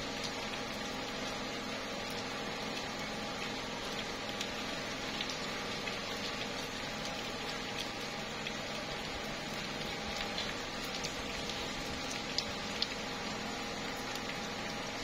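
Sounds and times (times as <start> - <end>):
light rain on tree leaves: 0.0 - 15.0.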